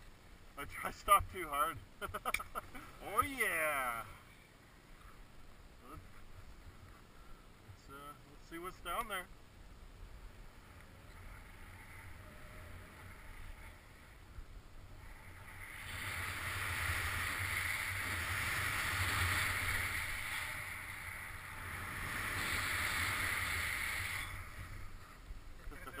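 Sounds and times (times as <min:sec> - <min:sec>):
snowboard hissing over snow: 0:15.0 - 0:25.1.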